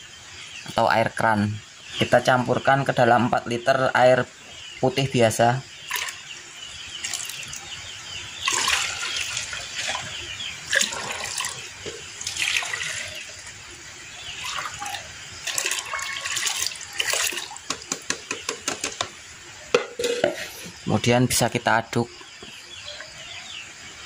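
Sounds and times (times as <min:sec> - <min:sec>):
liquid pouring into bucket of water: 0:05.9 - 0:06.2, 0:07.0 - 0:07.6, 0:08.4 - 0:13.6, 0:14.4 - 0:17.8.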